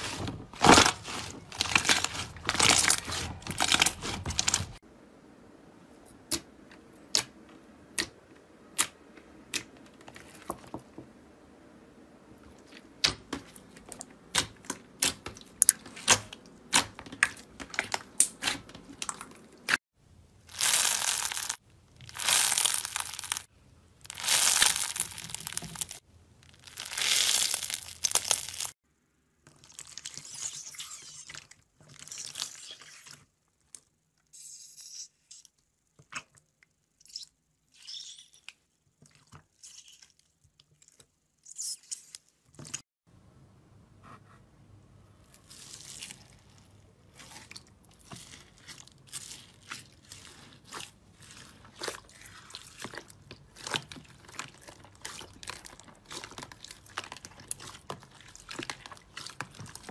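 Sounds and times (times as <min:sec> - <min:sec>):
slime squishing: 0:00.0 - 0:04.8, 0:12.4 - 0:19.8, 0:20.4 - 0:28.8, 0:45.2 - 0:59.9
crunchy slime squeezed: 0:20.5 - 0:28.7, 0:48.0 - 0:59.9.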